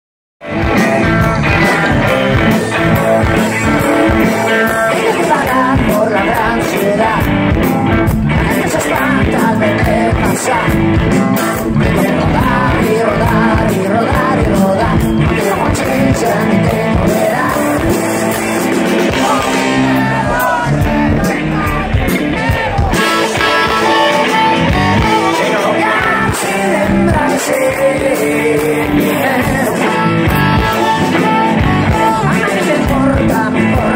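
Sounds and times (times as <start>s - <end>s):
live rock band playing: 0.4s - 33.9s
lead vocal singing: 0.5s - 33.9s.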